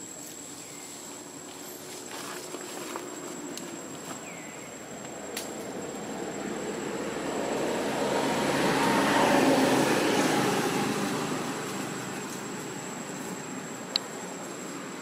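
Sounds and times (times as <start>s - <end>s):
vehicle passing by: 4.7s - 15.0s.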